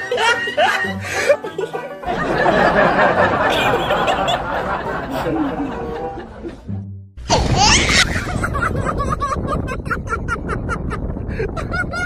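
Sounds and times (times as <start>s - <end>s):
laughter: 0.0s - 6.7s, 7.8s - 12.0s
music: 0.0s - 7.3s.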